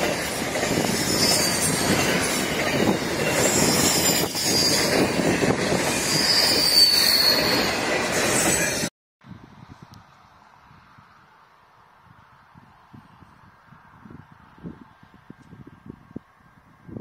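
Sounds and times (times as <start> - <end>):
high wheel squeal: 0.0 - 8.9
train wheels clattering on rails: 0.0 - 8.9.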